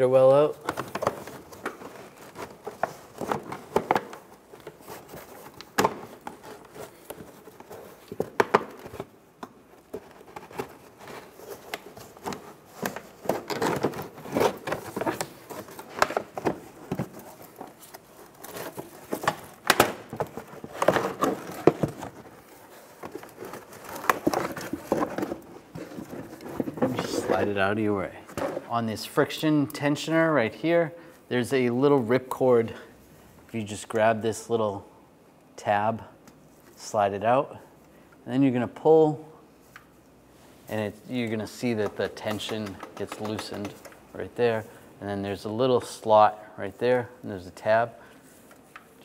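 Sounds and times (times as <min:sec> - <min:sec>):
fender liner rustling and scraping: 0:00.7 - 0:28.7.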